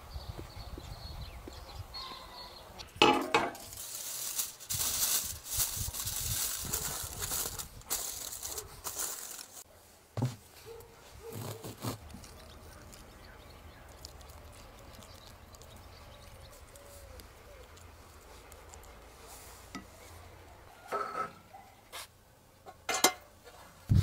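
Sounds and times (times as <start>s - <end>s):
aluminium foil crinkling: 3.5s - 9.6s, 10.9s - 19.7s
spoon spreading creamy filling: 11.3s - 20.1s.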